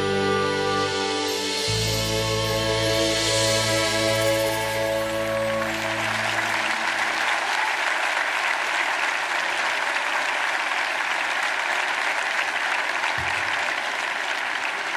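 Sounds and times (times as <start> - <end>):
audience applauding: 3.8 - 14.9.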